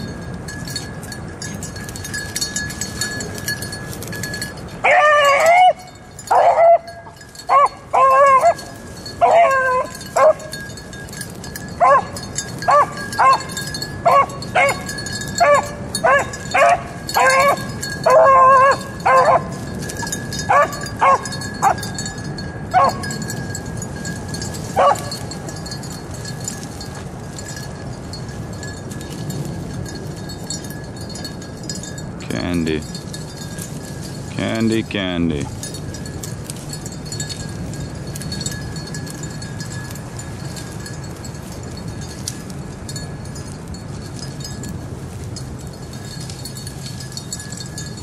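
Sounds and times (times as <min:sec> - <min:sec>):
hounds baying: 0:01.5 - 0:27.6
dogs barking: 0:04.8 - 0:10.7, 0:11.7 - 0:21.9, 0:22.7 - 0:23.3, 0:24.7 - 0:25.2.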